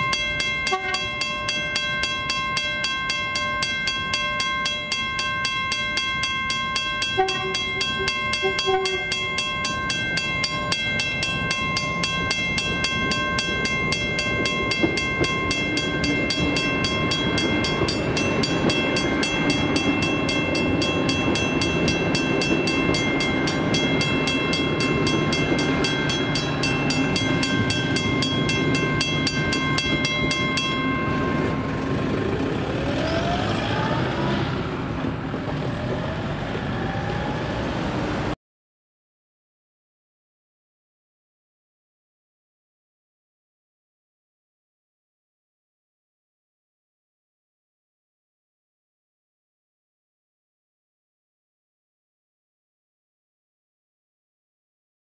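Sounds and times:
level-crossing bell ringing: 0.0s - 34.4s
diesel train passing: 0.0s - 38.4s.

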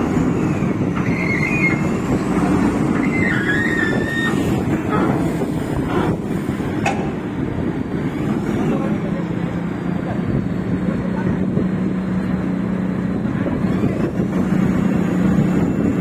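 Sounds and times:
heavy vehicle engine running: 0.0s - 16.0s
high squeals: 1.0s - 2.0s, 2.9s - 4.7s.

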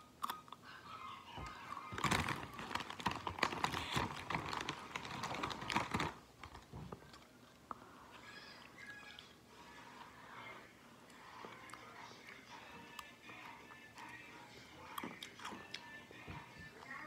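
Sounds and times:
plastic chip bag crinkling: 1.8s - 6.7s.

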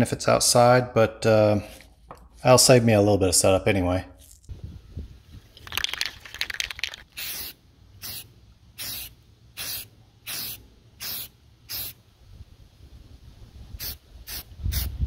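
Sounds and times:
spray can rattling when shaken: 5.5s - 8.2s
aerosol spray hissing bursts: 7.2s - 12.0s, 13.8s - 15.0s.

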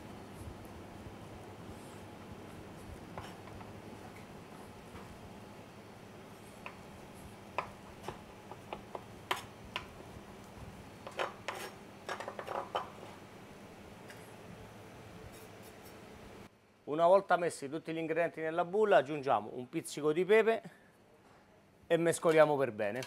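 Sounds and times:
knife scraping cutting board: 11.1s - 11.8s.

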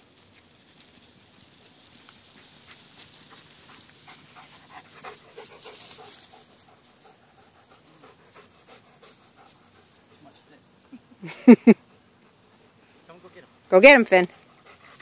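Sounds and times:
dog panting: 2.4s - 10.5s, 14.2s - 15.0s.

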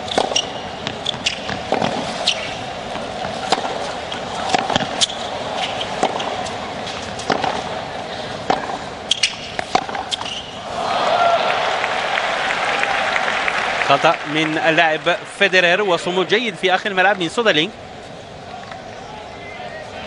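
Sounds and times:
racquets striking tennis ball: 0.0s - 10.8s
stadium crowd noise: 0.0s - 20.0s.

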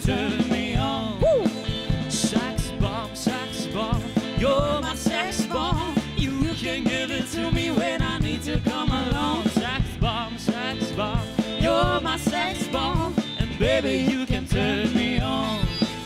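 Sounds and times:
drum kit: 0.0s - 16.0s
electric guitar: 0.0s - 16.0s
keyboard: 0.0s - 16.0s
person singing: 0.0s - 16.0s.

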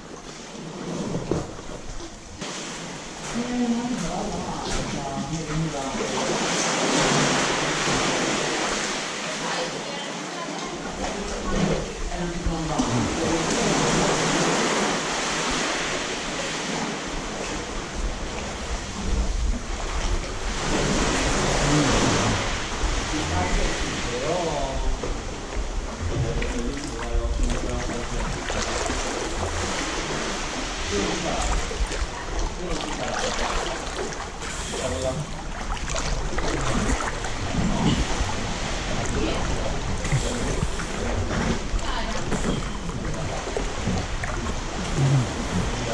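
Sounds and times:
seawater sloshing against rock: 0.0s - 9.8s, 10.6s - 45.9s
sea water lapping in cave: 0.0s - 45.9s
low rumble: 17.2s - 45.9s.

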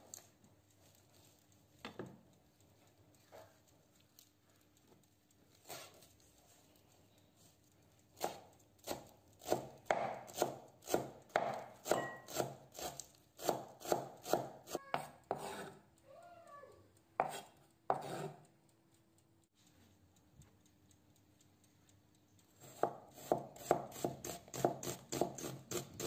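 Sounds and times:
knife chopping on wooden board: 8.2s - 15.7s, 17.2s - 18.4s, 22.6s - 26.0s.

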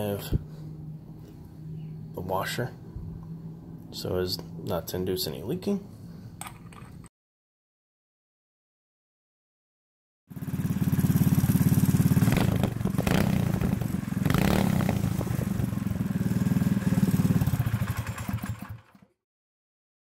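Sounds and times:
mini bike engine running: 10.3s - 19.1s.

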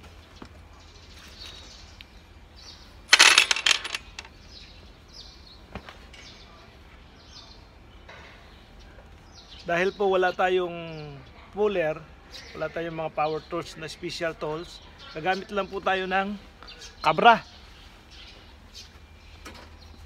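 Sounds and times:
metal parts clinking and rattling: 3.1s - 4.3s.

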